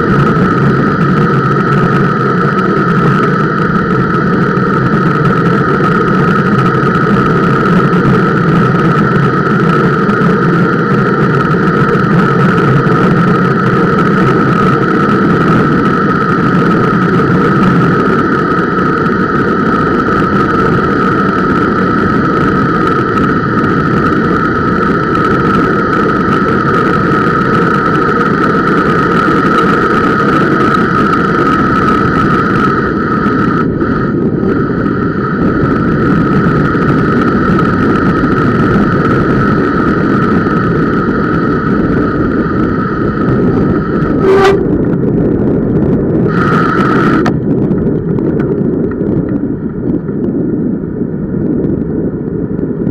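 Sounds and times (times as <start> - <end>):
bicycle disc brakes whining: 0.0 - 50.8
low rumble of rolling: 0.0 - 52.9
brake squeal: 44.0 - 44.7.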